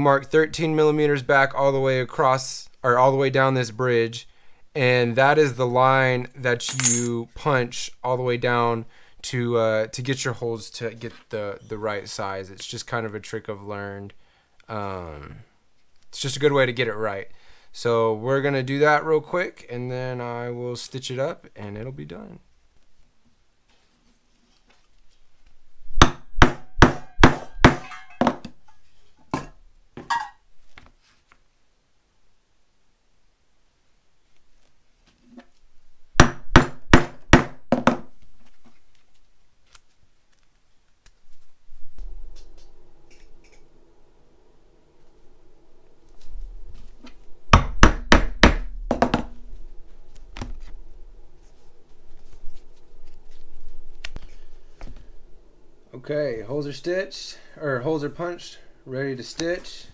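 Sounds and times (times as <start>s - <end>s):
mallet striking leather punch: 26.0s - 28.3s, 36.2s - 38.0s, 47.6s - 49.2s
mallet striking metal punch: 26.0s - 28.4s.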